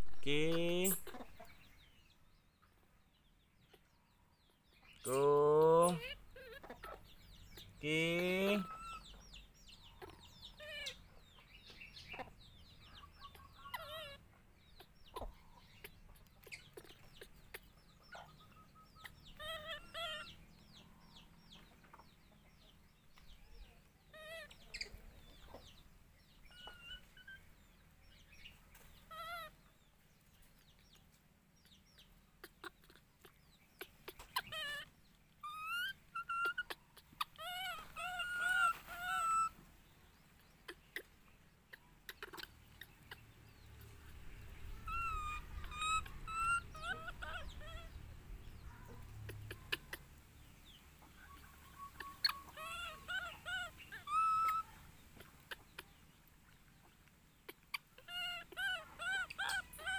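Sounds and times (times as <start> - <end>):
squeaky animal calls: 5.8 - 7.1, 8.4 - 9.1, 10.0 - 11.1, 13.3 - 14.2, 18.9 - 20.4, 29.1 - 29.6, 34.0 - 39.6, 41.7 - 42.9, 44.8 - 48.0, 51.3 - 55.9, 57.5 - 59.9.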